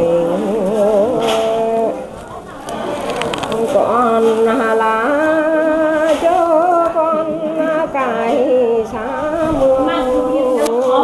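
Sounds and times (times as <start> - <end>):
person singing long wavering notes: 0.0 - 2.1, 3.3 - 11.0.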